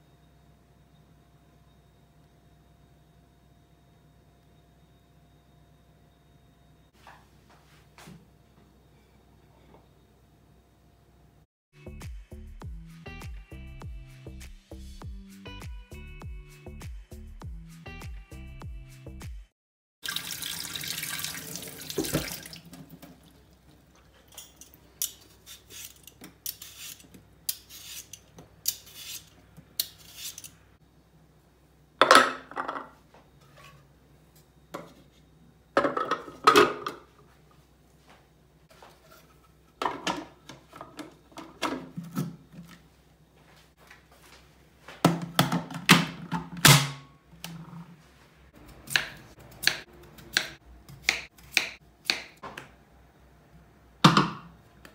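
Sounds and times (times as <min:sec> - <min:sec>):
tap water running into sink: 0:20.0 - 0:23.4
kitchen parts clattering: 0:24.0 - 0:27.1, 0:32.0 - 0:33.0, 0:35.8 - 0:37.1, 0:39.0 - 0:42.4.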